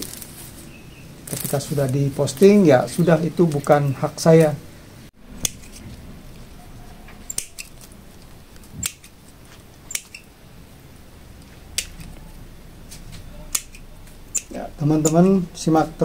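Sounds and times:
pruning scissors snipping: 5.4s - 5.9s, 7.2s - 9.2s, 9.9s - 10.3s, 11.7s - 12.3s, 12.9s - 15.4s.

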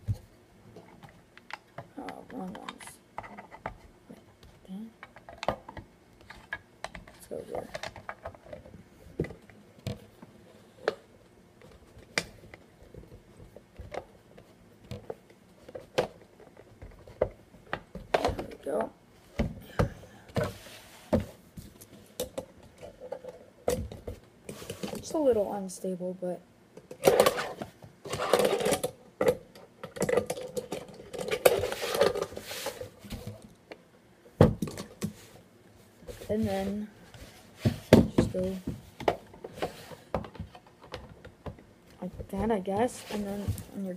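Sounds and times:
plastic pieces knocking and clicking: 26.8s - 32.3s.

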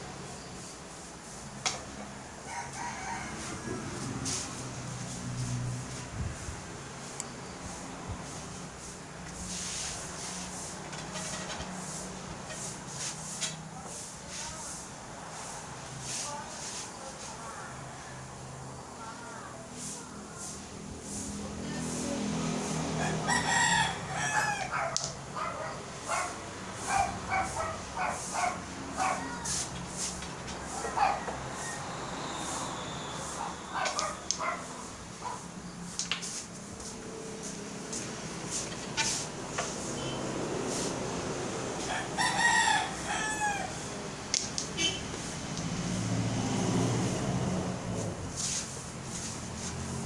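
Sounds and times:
rooster crowing: 2.4s - 4.3s, 22.9s - 25.0s, 30.7s - 34.0s, 41.6s - 44.0s.

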